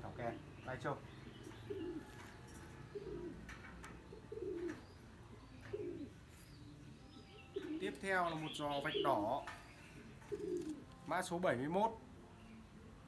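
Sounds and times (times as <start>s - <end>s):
dove cooing: 1.3s - 6.4s, 7.2s - 10.9s.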